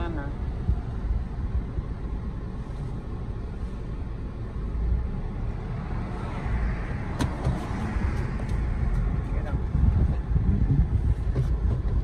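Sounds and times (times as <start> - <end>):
car interior road rumble: 0.0 - 12.0.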